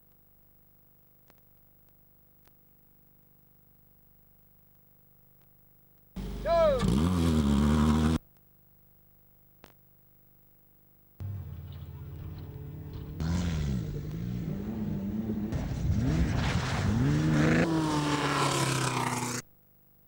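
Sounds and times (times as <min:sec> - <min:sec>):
race car engines revving: 0:06.2 - 0:08.2, 0:11.2 - 0:19.4.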